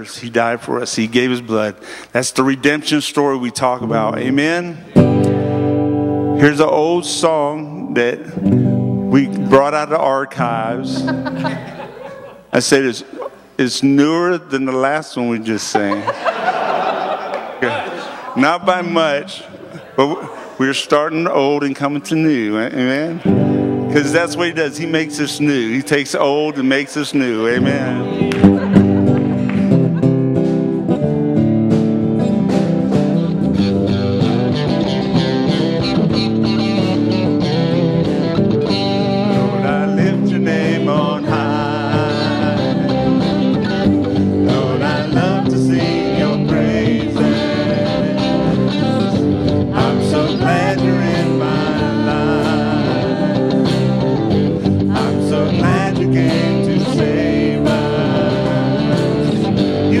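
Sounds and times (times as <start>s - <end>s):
live band playing gospel: 4.8s - 12.4s, 23.2s - 60.0s
women singing: 40.4s - 43.8s, 44.4s - 49.0s, 49.7s - 54.0s, 54.8s - 60.0s.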